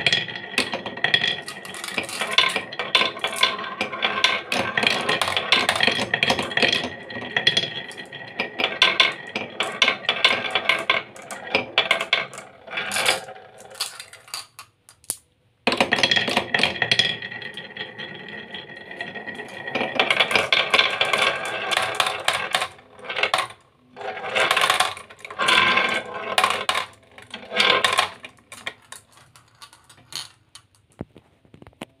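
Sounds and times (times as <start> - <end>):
marbles dropping into plastic truck: 0.0 - 17.6, 19.0 - 31.8
glass marbles rolling and clattering: 0.0 - 31.6.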